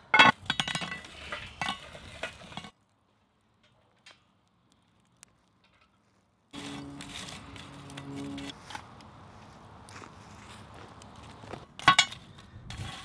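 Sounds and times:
coals clattering on metal lid: 0.1 - 2.8, 11.8 - 12.3.

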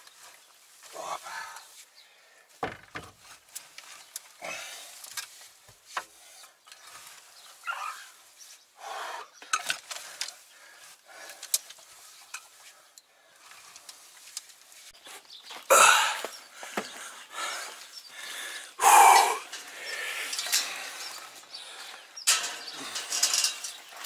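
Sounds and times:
hand tool scraping straw bedding: 5.2 - 8.8.

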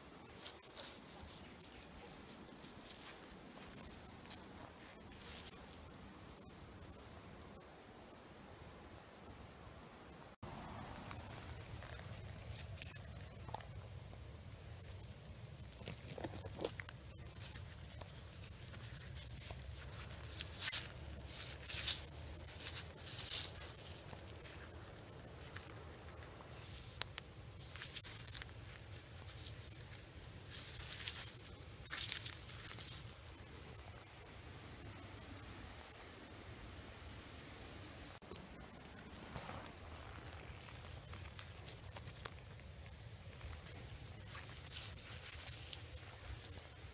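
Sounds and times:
gritty scratching of gravelly soil: 0.2 - 6.5, 10.7 - 13.8, 14.7 - 34.0, 39.0 - 46.9.

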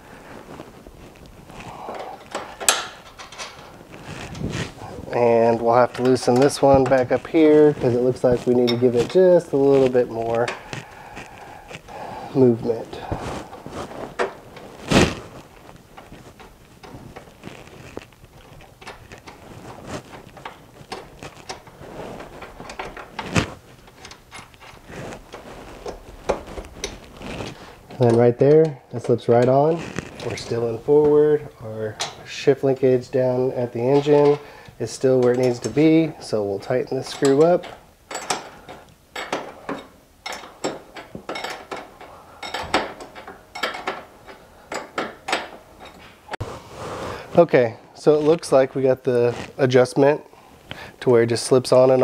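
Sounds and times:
wrench clicking and knocking on metal: 1.9 - 3.7, 37.1 - 46.0.

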